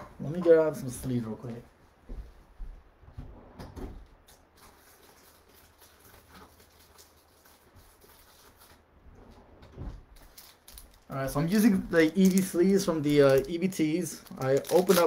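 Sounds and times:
rustling: 0:04.2 - 0:15.0.

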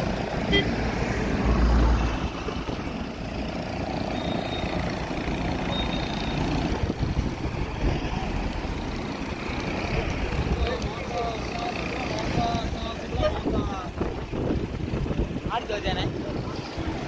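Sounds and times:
low rumble of road traffic: 0:00.0 - 0:17.0
wind buffeting microphone: 0:06.5 - 0:11.1, 0:12.1 - 0:17.0.

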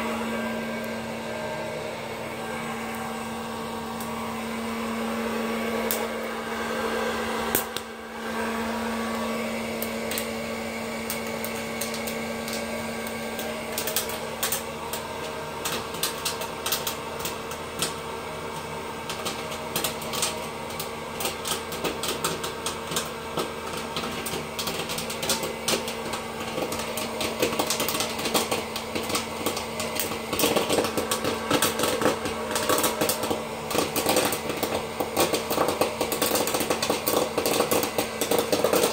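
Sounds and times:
popcorn popper fan hum: 0:00.0 - 0:38.9
popcorn kernels popping: 0:05.8 - 0:06.3, 0:07.5 - 0:08.0, 0:09.1 - 0:38.9.

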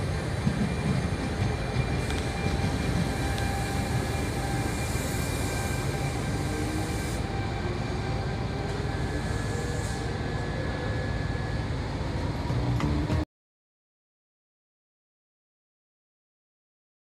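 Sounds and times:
electric locomotive motor whine: 0:00.0 - 0:13.2
train running noise: 0:00.0 - 0:13.3.

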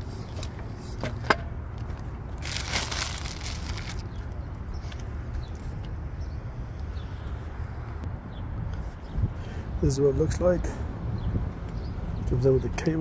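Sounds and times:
packaging rustling: 0:02.4 - 0:04.1.

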